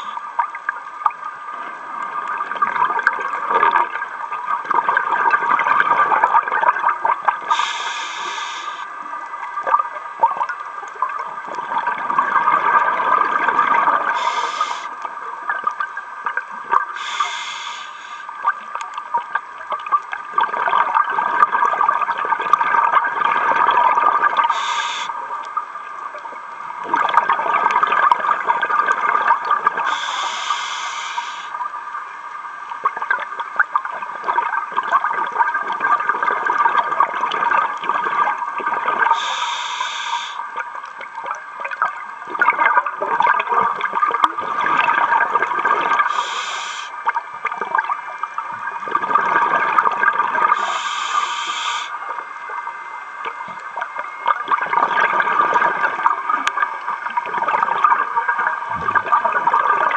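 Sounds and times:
regulator inhale hiss: 0:07.5 - 0:08.9, 0:14.1 - 0:15.0, 0:17.0 - 0:18.4, 0:24.5 - 0:25.2, 0:29.9 - 0:31.6, 0:39.1 - 0:40.4, 0:46.1 - 0:47.0, 0:50.5 - 0:52.0.

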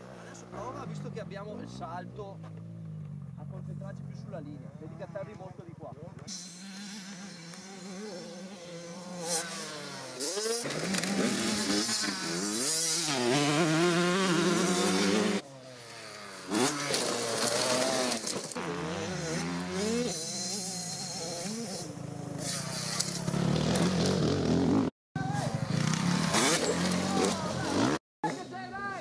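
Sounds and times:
dirt bike engine revving: 0:06.3 - 0:28.4.

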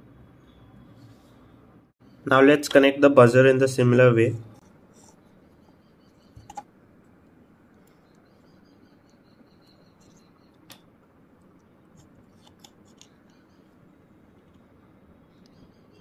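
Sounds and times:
faint high chirping: 0:05.0 - 0:06.6, 0:07.8 - 0:10.7, 0:13.1 - 0:14.0, 0:15.1 - 0:16.0.

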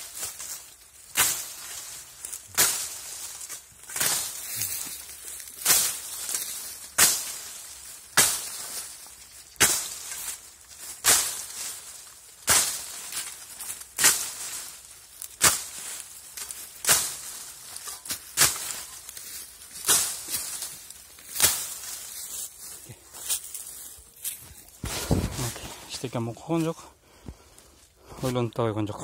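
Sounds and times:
rustle of canes: 0:00.0 - 0:26.8
shovel blade chopping canes: 0:02.5 - 0:03.1, 0:06.9 - 0:07.5, 0:08.2 - 0:08.6, 0:09.5 - 0:10.4, 0:11.0 - 0:11.6, 0:12.4 - 0:14.5, 0:15.2 - 0:15.8, 0:16.4 - 0:19.0, 0:19.8 - 0:20.7, 0:21.3 - 0:21.9.

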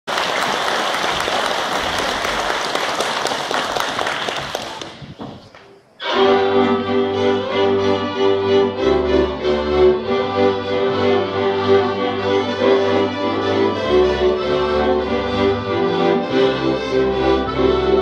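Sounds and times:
applause: 0:00.0 - 0:05.1
folk string band playing: 0:06.0 - 0:18.0.

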